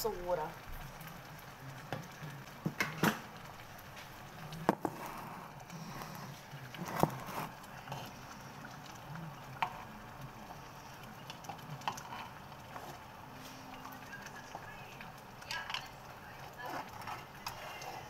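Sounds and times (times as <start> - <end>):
gas burner hiss: 0.0 - 15.1
wooden spoon stirring in metal pot: 0.0 - 18.0.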